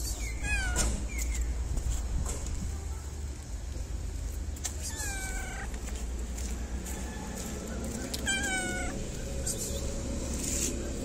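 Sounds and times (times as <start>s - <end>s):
cat meowing: 0.4s - 1.0s, 4.7s - 5.8s, 8.2s - 9.0s.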